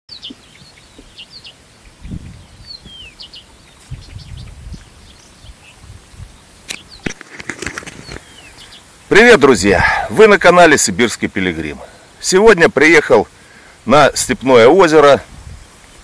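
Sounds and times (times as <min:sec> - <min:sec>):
small birds chirping: 0:00.1 - 0:16.0
wind rumbling on microphone: 0:01.8 - 0:08.6, 0:15.2 - 0:16.0.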